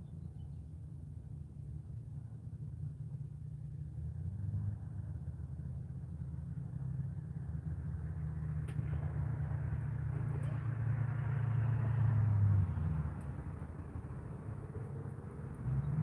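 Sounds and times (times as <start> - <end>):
car passing: 7.6 - 16.0.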